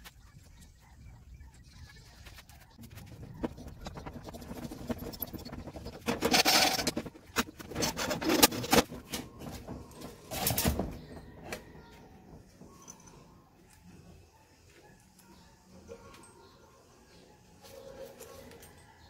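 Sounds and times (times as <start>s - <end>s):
metal scraping and clinking: 3.8s - 9.2s.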